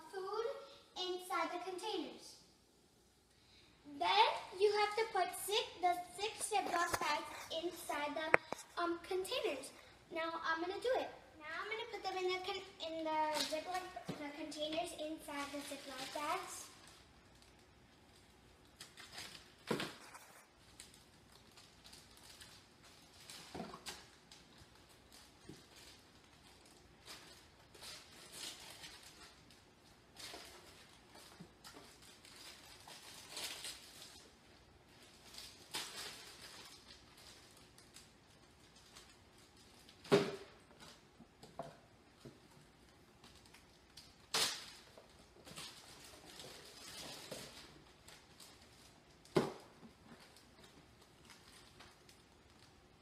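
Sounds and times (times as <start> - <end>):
plastic bags rustling: 15.2 - 53.0.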